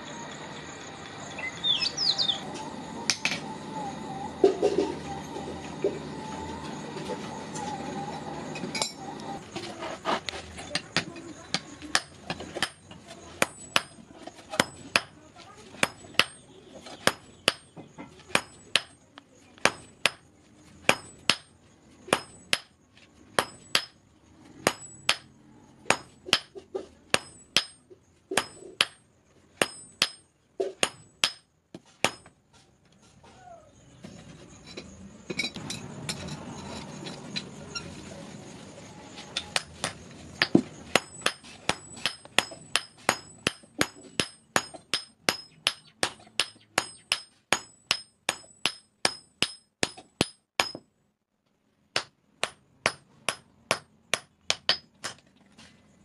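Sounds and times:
hammer striking metal on anvil: 8.8s - 9.0s, 11.5s - 14.0s, 15.8s - 16.4s, 17.0s - 19.0s, 22.1s - 22.7s, 23.4s - 24.0s, 24.6s - 25.3s, 25.9s - 29.0s, 29.6s - 32.3s, 39.6s - 50.9s, 52.0s - 55.2s.

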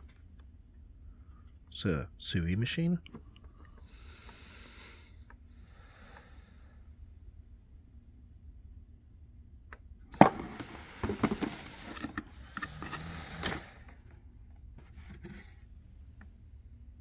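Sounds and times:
packaging scraping and rustling: 10.4s - 14.1s.

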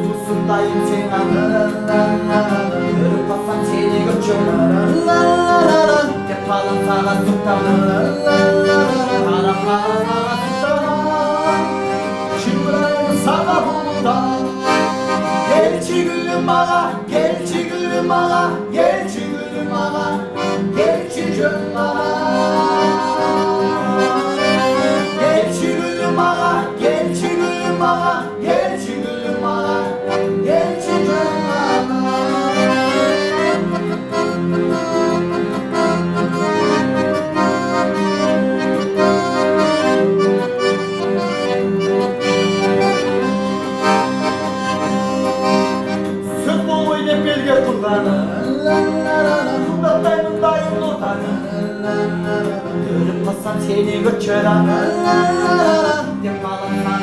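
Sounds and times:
piano accordion melody: 0.0s - 57.0s
strummed acoustic guitar: 0.0s - 57.0s.

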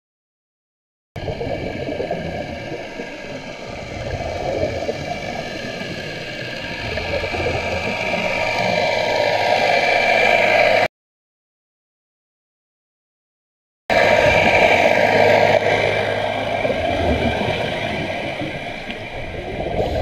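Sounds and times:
underwater motorboat engine drone: 1.2s - 10.9s, 13.9s - 20.0s.

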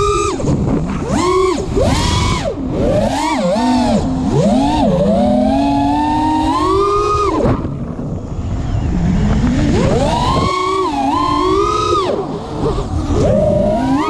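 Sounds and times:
drone motors buzzing whine: 0.0s - 14.0s.

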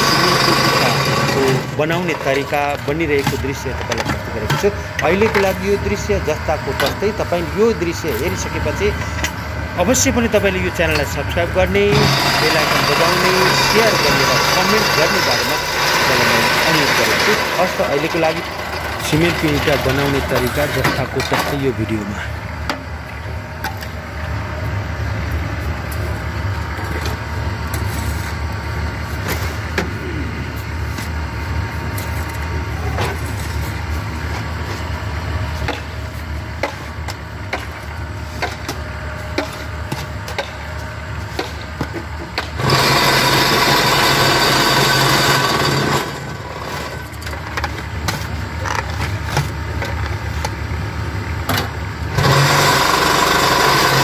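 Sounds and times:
loud mould vibrator: 0.0s - 22.0s, 41.2s - 49.3s, 51.9s - 54.0s
rake scraping concrete mix: 0.0s - 22.3s, 25.5s - 29.8s, 30.4s - 34.9s
machine motor running: 0.0s - 54.0s.

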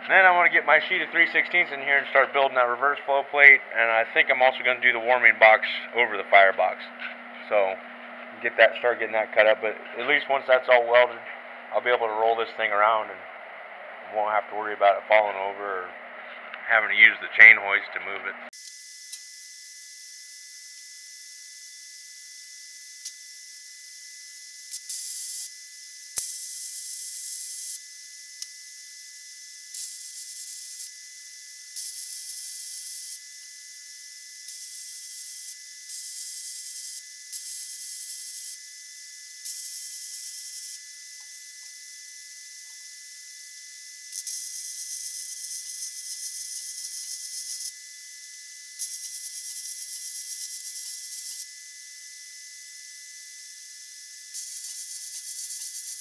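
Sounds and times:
welding arc: 18.6s - 56.0s.

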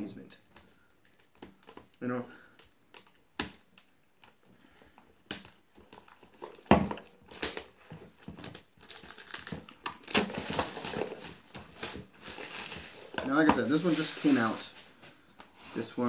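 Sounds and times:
plastic wrap crinkling: 5.2s - 15.9s.

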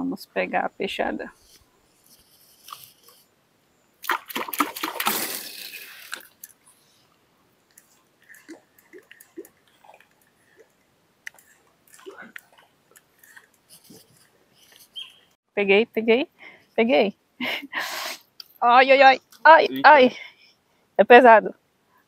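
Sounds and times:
loud splash in river: 4.0s - 5.8s
faint drips: 7.6s - 15.0s.

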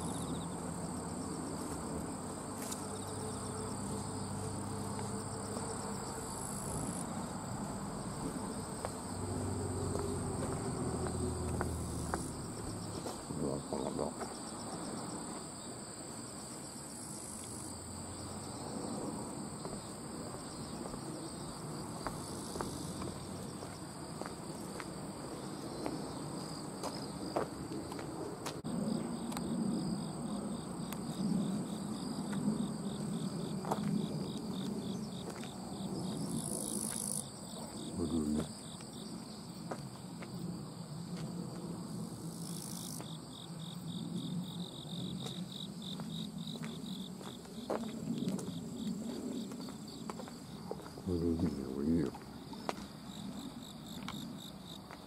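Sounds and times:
insects whining: 0.0s - 55.0s
insect pulsing trill: 28.7s - 39.6s.

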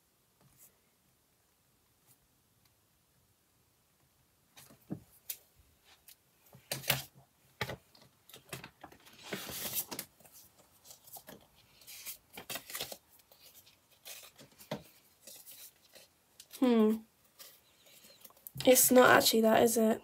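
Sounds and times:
banknotes crinkling and rustling: 4.6s - 19.4s.

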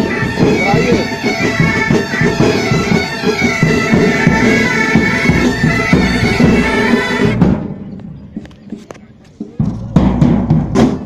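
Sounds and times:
bagpipes playing: 0.0s - 7.5s
snare and bass drums: 0.0s - 11.0s.

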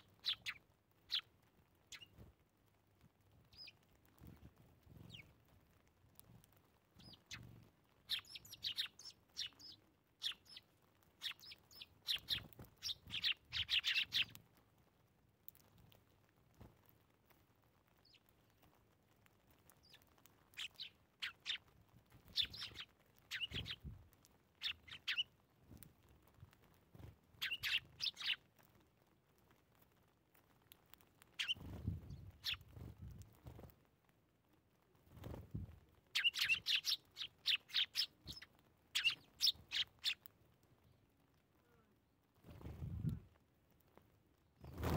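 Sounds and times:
sparrows chirping: 0.0s - 1.3s, 1.9s - 2.2s, 3.5s - 5.3s, 7.0s - 14.4s, 19.8s - 23.9s, 24.6s - 25.3s, 27.4s - 28.5s, 31.3s - 32.8s, 36.1s - 41.0s.

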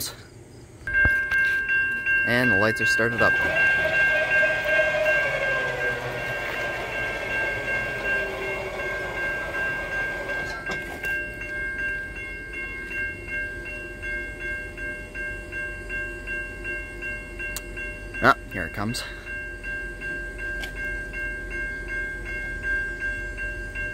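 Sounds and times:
level-crossing warning bell: 0.8s - 23.9s
crossing gate clunk: 3.1s - 11.1s
low hum falling in pitch: 3.3s - 10.6s.

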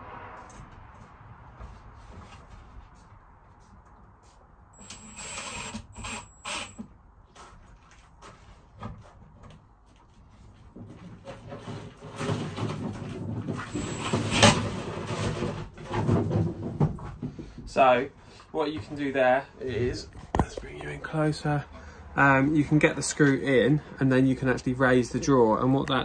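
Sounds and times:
cordless drill drilling into wood: 4.8s - 6.9s, 13.6s - 14.7s.

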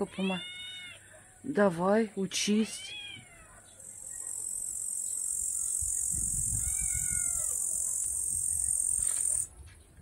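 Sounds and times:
cat meowing: 0.0s - 1.0s, 2.6s - 3.6s, 6.5s - 7.7s
insect buzzing: 4.0s - 9.4s.

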